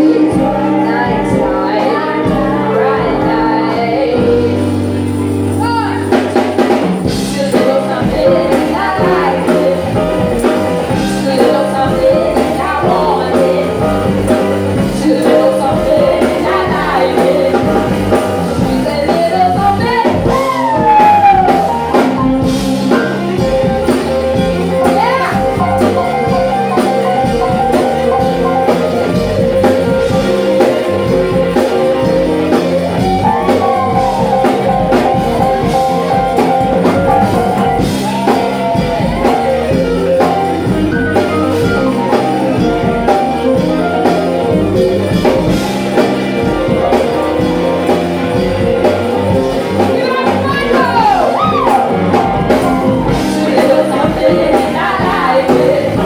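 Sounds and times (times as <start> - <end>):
woman singing: 0.0 - 6.2, 7.0 - 22.0, 24.7 - 27.0, 49.8 - 56.0
live band playing: 0.0 - 56.0.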